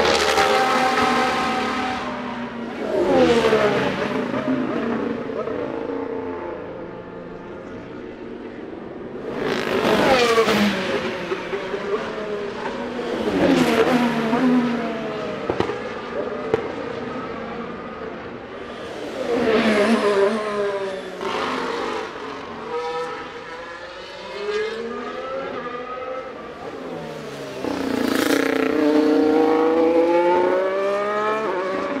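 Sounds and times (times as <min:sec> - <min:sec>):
racing cars passing at speed: 0:00.0 - 0:32.0
car accelerating with revs climbing: 0:18.6 - 0:32.0.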